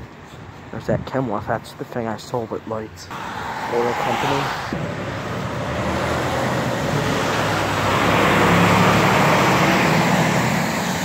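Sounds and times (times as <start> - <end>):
truck engine hum: 2.9 - 11.0.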